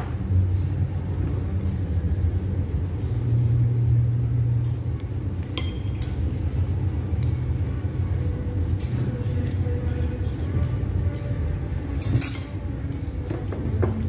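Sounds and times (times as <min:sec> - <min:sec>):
steady low hum: 0:00.0 - 0:14.0
cutlery clinking: 0:12.0 - 0:12.6.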